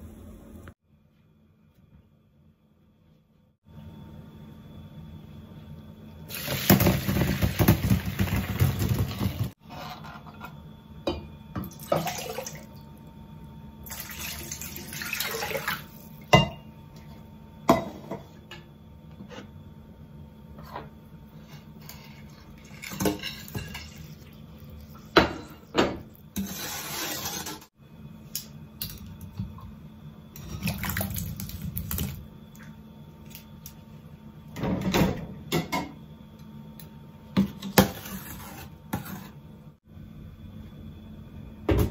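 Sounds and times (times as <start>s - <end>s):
pots and dishes clinking: 16.3s - 16.7s.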